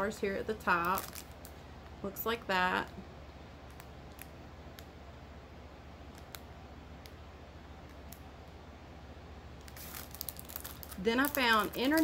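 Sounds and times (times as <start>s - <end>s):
low room hum: 0.0s - 12.0s
cellophane crinkling: 0.6s - 1.6s, 9.6s - 12.0s.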